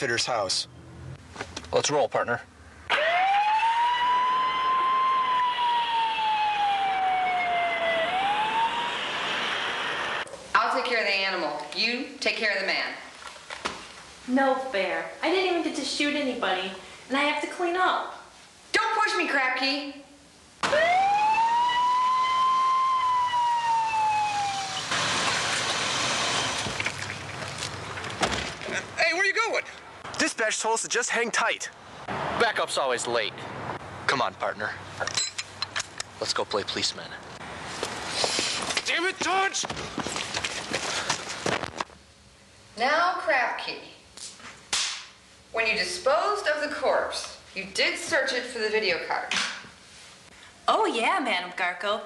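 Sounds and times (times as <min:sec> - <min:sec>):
police siren wailing: 0:02.9 - 0:10.2, 0:20.6 - 0:25.0
car noise rushing: 0:07.6 - 0:10.3, 0:24.1 - 0:28.1.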